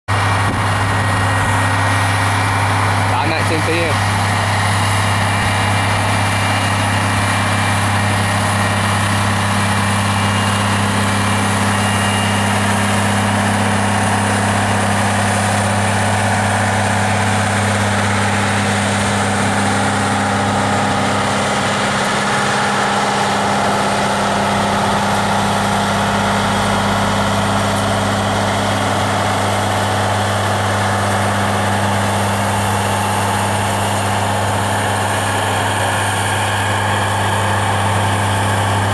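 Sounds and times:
train diesel engines droning: 0.1s - 38.9s.

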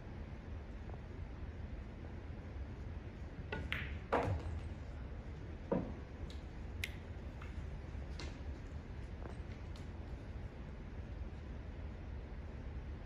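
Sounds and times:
cue striking ball: 3.5s - 4.6s, 5.7s - 6.0s
pool balls clacking: 3.5s - 5.0s, 5.6s - 6.5s.

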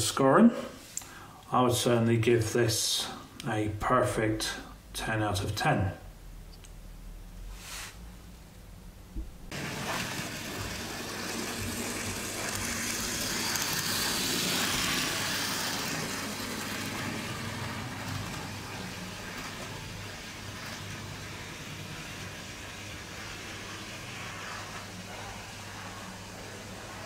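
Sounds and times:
model train motor whirring: 9.5s - 27.0s.

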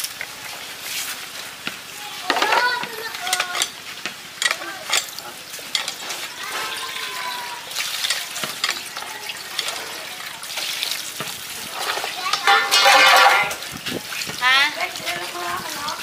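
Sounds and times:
water splashing into a basin: 6.3s - 16.0s
knocks and clatters: 11.8s - 13.6s.

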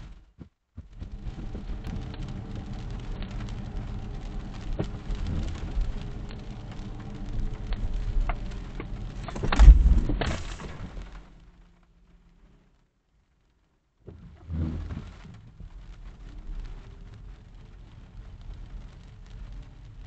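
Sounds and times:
tyre and road rumble: 0.0s - 11.7s, 14.0s - 20.0s
rain pattering on car: 0.0s - 20.0s
loud thump: 9.4s - 10.9s.

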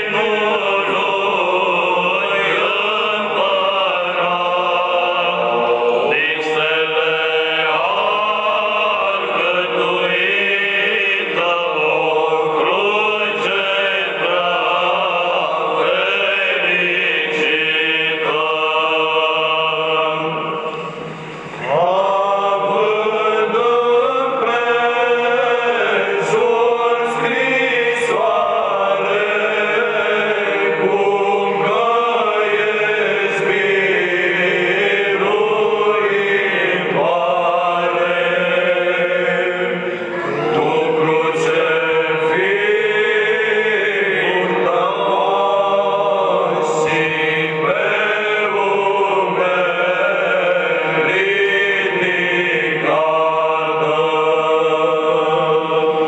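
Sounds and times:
voices chanting a hymn: 0.0s - 56.0s.

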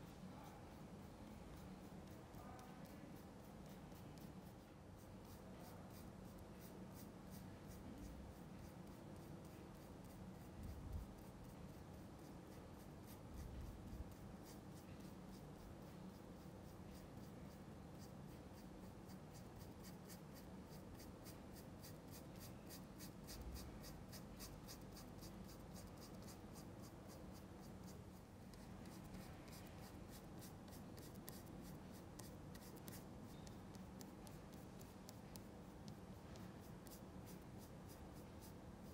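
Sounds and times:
brush strokes on canvas: 0.0s - 38.9s.

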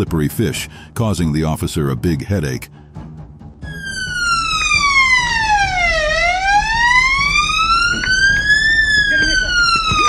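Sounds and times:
police siren wailing: 3.6s - 10.0s.

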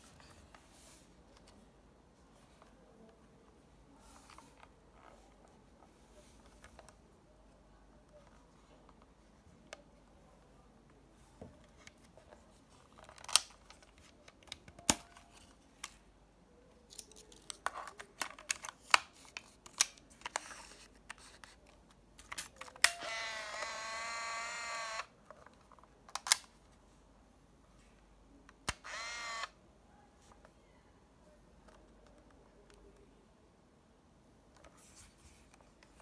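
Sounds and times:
camera motor whirring: 22.9s - 25.1s, 28.8s - 29.5s.

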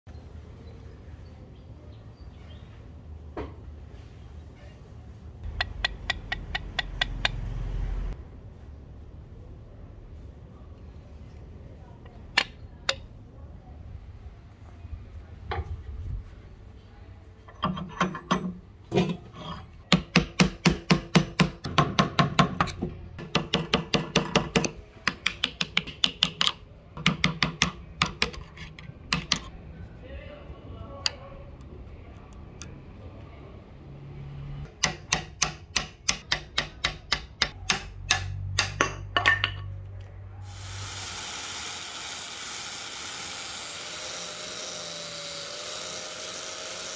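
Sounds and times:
hammer striking steel punch: 34.8s - 39.1s
angle grinder whining: 40.5s - 46.9s.

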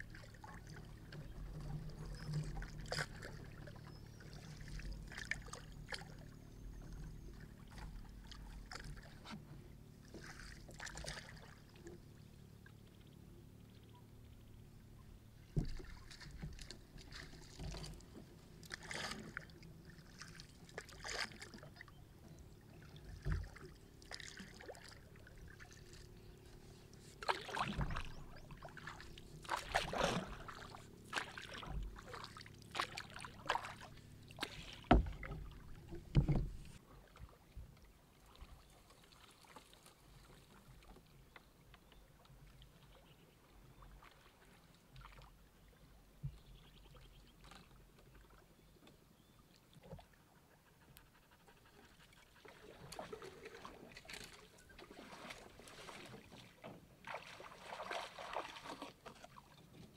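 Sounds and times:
paddle splashing in water: 0.0s - 12.3s, 15.3s - 42.8s, 43.7s - 45.4s, 51.1s - 59.9s
paddle knocking against hull: 15.5s - 19.4s, 27.2s - 36.8s.

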